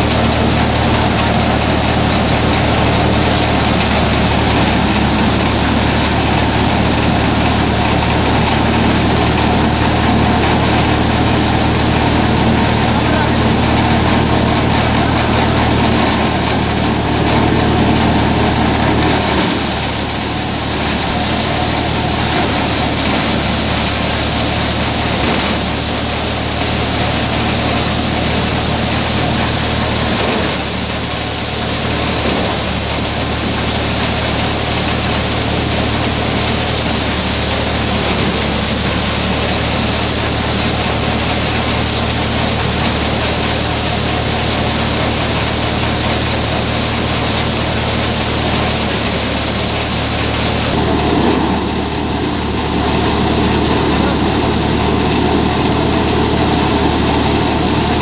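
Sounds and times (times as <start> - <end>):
grain pouring hiss: 0.0 - 58.0
thresher engine drone: 0.0 - 58.0
mechanical clatter: 12.8 - 51.7.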